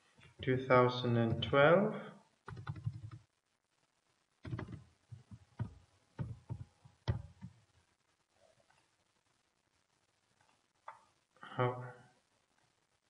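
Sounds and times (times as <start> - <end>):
keyboard keystrokes: 2.5 - 3.2, 4.4 - 7.5.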